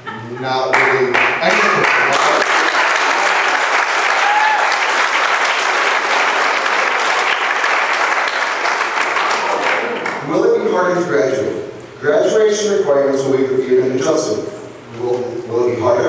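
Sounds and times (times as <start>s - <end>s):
roomful of people applauding: 0.7s - 10.7s.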